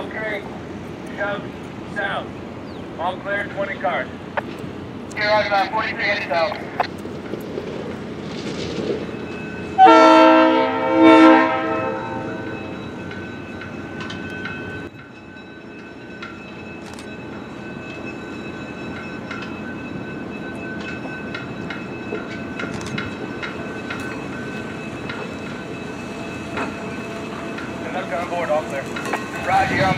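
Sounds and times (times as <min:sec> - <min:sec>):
train rumbling: 0:00.0 - 0:29.9
train air horn blasts: 0:09.8 - 0:12.4
wheels clicking over rail joints: 0:12.8 - 0:29.9.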